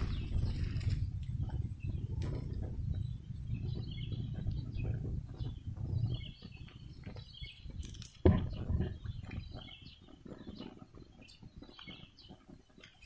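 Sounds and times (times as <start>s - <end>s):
small birds chirping: 0.0s - 13.0s
wind buffeting microphone: 0.0s - 13.0s.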